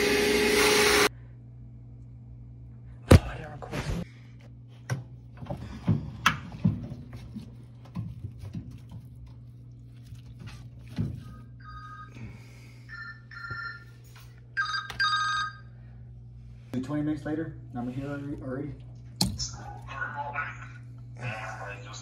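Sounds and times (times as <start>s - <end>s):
steady low hum: 1.1s - 14.6s, 15.4s - 22.0s
phone ringtone chimes: 14.6s - 15.6s.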